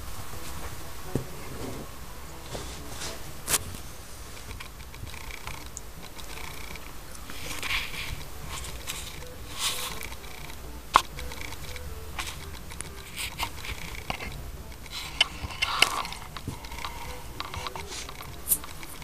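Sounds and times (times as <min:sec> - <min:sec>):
kittens scuffling on carpet: 0:00.2 - 0:05.1
light scratches and clicks: 0:02.3 - 0:19.0.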